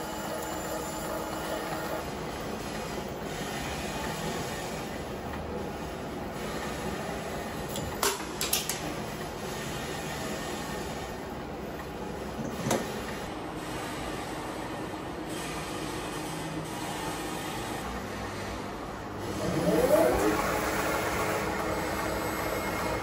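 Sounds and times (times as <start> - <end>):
lathe machining noise: 12.8 - 23.0.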